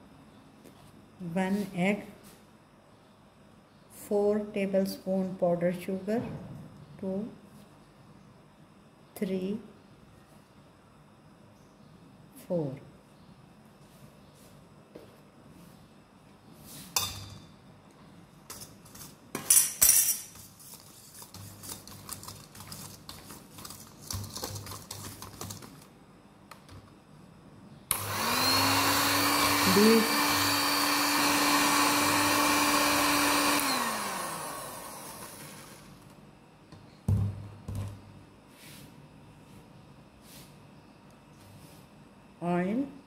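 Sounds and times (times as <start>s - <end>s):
beaters whisking in metal bowl: 20.4s - 25.8s
electric hand mixer running: 27.9s - 36.0s.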